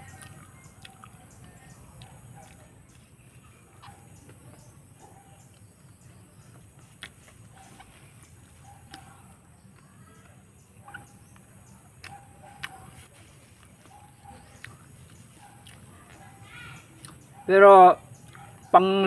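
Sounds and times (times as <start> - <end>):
chickens clucking: 0.0 - 9.4
bird chirping: 0.0 - 19.0.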